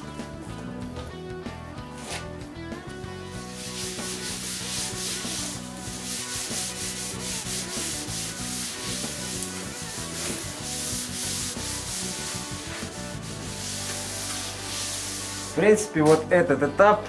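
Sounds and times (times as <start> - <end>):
abrasive pad scrubbing metal: 3.4 - 15.7.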